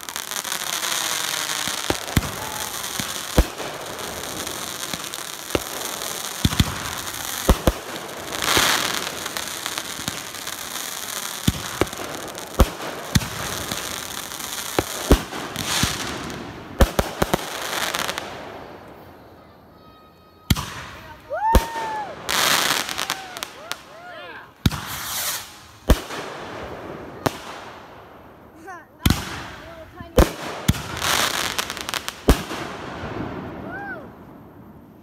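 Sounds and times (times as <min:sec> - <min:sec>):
fireworks whistles: 0:00.0 - 0:23.9, 0:24.6 - 0:26.3
fireworks bangs: 0:00.0 - 0:35.0
fireworks crackling: 0:00.0 - 0:35.0.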